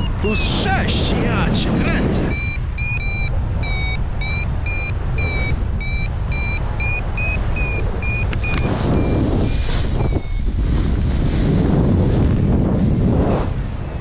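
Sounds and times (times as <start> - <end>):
variometer short high beeps: 0.0 - 0.6, 1.9 - 10.6
wind rush on microphone: 0.0 - 14.0.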